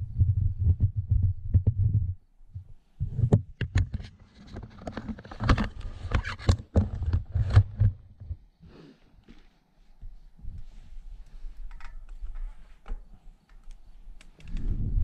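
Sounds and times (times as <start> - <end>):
wind buffeting on microphone: 0.0 - 3.4, 14.4 - 15.0.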